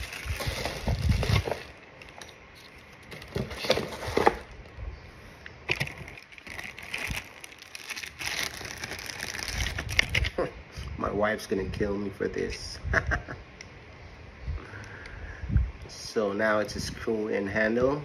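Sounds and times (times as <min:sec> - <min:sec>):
plastic packaging rustling: 0:00.0 - 0:04.8, 0:05.6 - 0:10.4.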